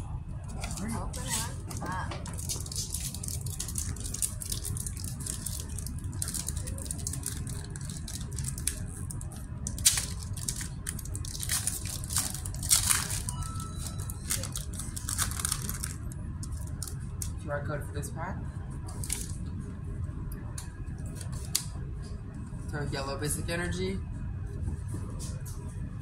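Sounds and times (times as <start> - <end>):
steady low hum: 0.0 - 26.0
foil wrappers crinkling and tearing: 0.7 - 17.4.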